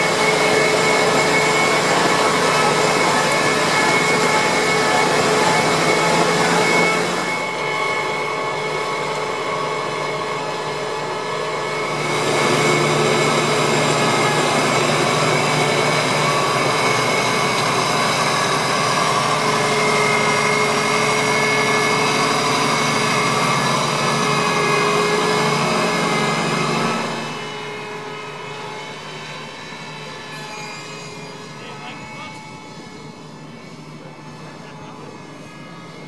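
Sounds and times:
harvester engine and machinery: 0.0 - 36.0.

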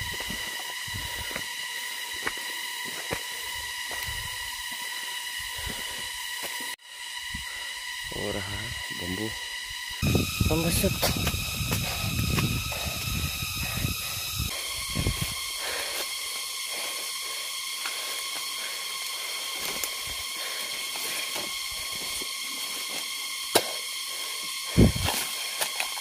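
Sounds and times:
steady high whine: 0.0 - 26.0
bamboo stems rustling and cracking: 15.2 - 26.0.

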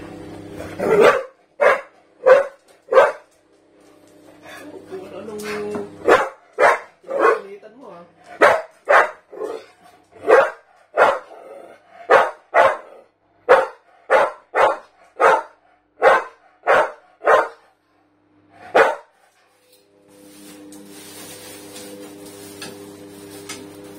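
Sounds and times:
dog barking: 0.8 - 3.3, 6.0 - 7.5, 8.4 - 11.5, 12.1 - 17.7, 18.7 - 19.1.

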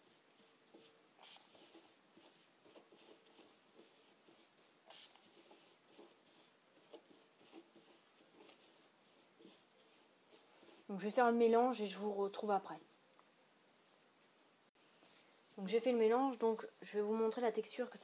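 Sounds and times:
fingers rubbing powder in bowl: 0.0 - 12.0
spray bottle spritzes: 1.2 - 1.6, 4.9 - 5.2.

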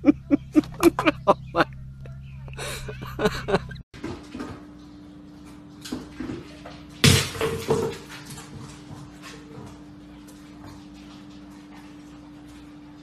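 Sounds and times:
bowl and kibble knocking on tiles: 5.8 - 9.7
plastic bowl clattering on tiles: 5.9 - 9.0.

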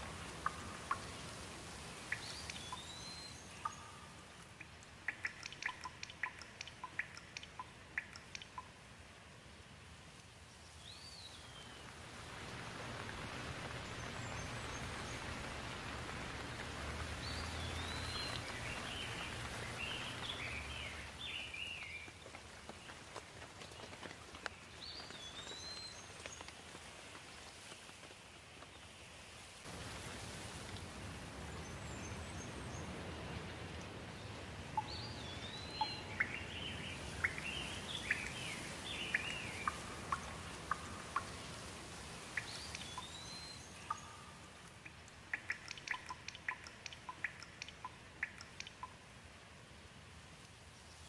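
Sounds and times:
steady rain falling: 0.0 - 51.0
bird chirps: 2.1 - 8.7, 17.0 - 22.1, 34.8 - 41.6, 42.3 - 49.0
sharp ticks: 4.4 - 8.7, 43.9 - 49.0.

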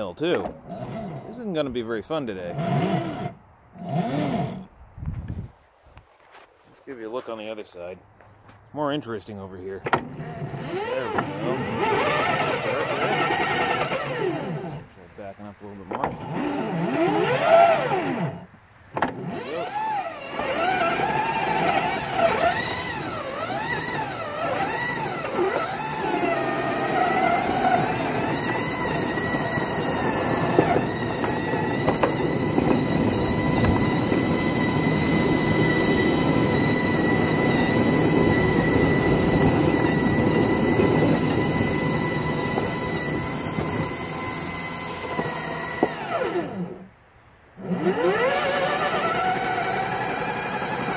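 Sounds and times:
rail vehicle motor whining: 0.0 - 4.7, 9.8 - 15.0, 15.6 - 47.0, 47.6 - 50.9.

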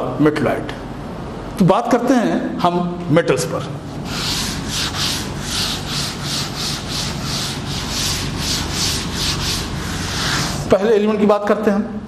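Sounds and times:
duster rubbing on chalkboard: 3.9 - 10.7.

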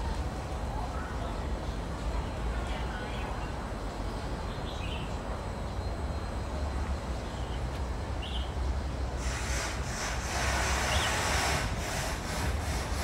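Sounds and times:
broad hiss: 9.2 - 13.0.

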